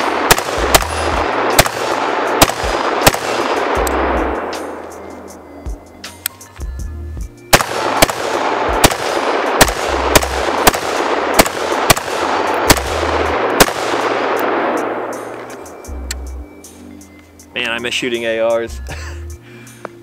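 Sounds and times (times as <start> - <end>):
pistol gunshots: 0.0 - 4.8, 7.5 - 15.4.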